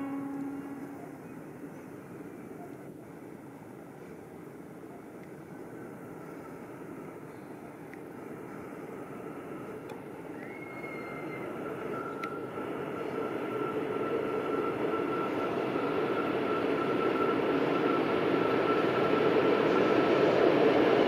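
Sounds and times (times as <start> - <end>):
faint high tone: 0.0 - 1.4
freight train rumbling past: 0.0 - 21.0.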